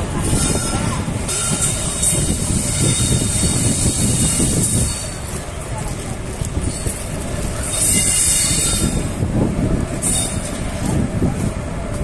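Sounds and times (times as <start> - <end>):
train wheels rumbling over rails: 0.0 - 12.0
high-pitched wheel squeal: 0.2 - 5.2, 7.6 - 9.1, 10.0 - 10.5.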